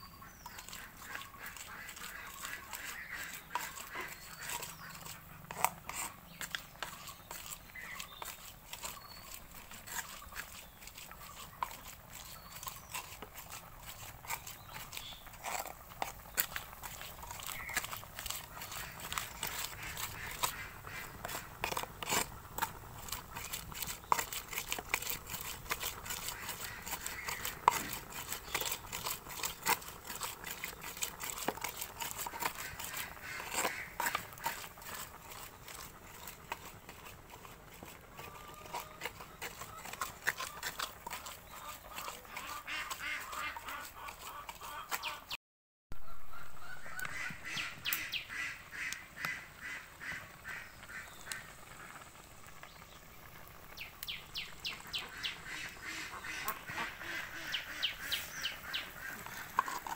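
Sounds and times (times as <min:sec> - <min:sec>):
ducks quacking: 0:00.2 - 0:06.2, 0:17.3 - 0:22.2, 0:25.8 - 0:29.2, 0:31.2 - 0:36.8, 0:38.1 - 0:45.4, 0:46.3 - 0:52.0, 0:54.7 - 0:59.9.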